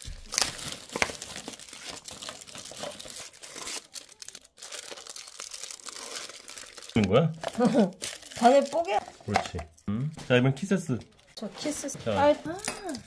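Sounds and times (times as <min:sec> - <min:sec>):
foil wrapper crinkling and tearing: 0:00.0 - 0:09.1.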